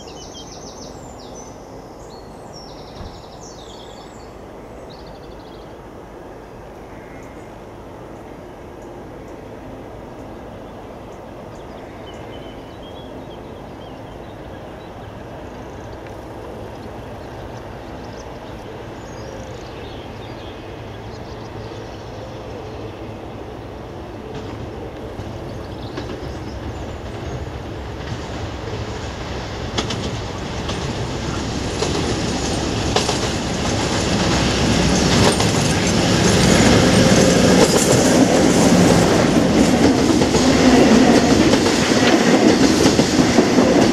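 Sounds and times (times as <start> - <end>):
diesel locomotive engine running: 12.3 - 43.9
wheels clicking over rail joints: 24.3 - 43.9.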